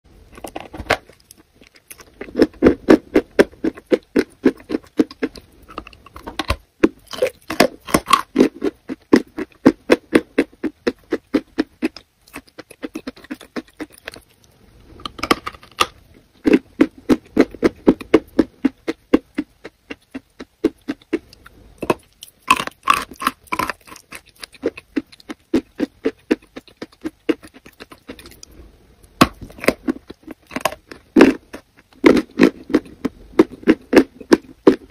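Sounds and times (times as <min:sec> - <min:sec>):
wet sticky chewing: 0:00.6 - 0:14.5.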